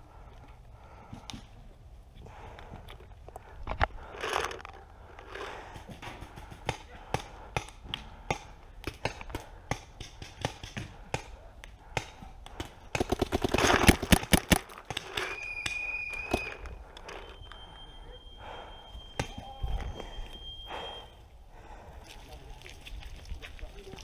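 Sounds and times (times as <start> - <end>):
paintball markers firing: 5.8 - 16.6.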